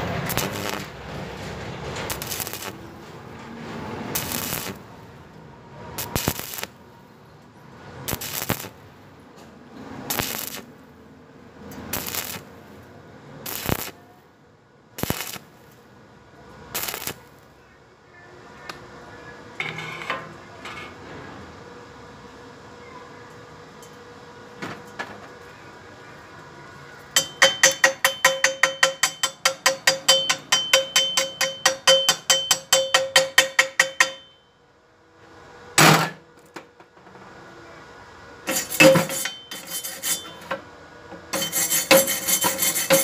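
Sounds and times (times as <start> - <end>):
welding arc crackling: 0.0 - 1.4, 2.0 - 3.0, 4.1 - 5.0, 6.0 - 6.8, 8.0 - 8.8, 10.0 - 10.8, 11.7 - 12.8, 13.4 - 14.0, 15.0 - 15.8, 16.7 - 17.5.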